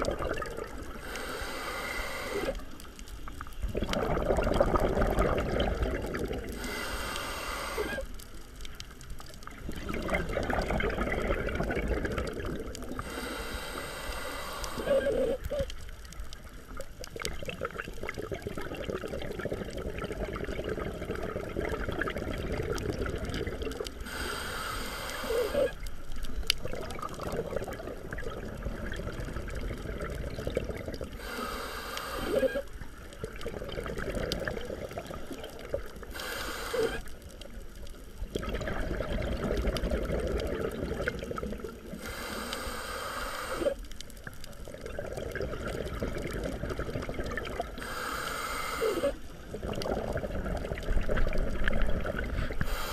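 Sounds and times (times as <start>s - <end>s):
bubbling gurgling exhale: 0.0s - 52.9s
regulator hissing inhales: 0.9s - 2.7s, 6.6s - 8.2s, 12.9s - 15.5s, 24.0s - 25.8s, 31.1s - 32.7s, 36.1s - 37.1s, 42.0s - 43.8s, 47.8s - 49.2s, 52.4s - 52.9s.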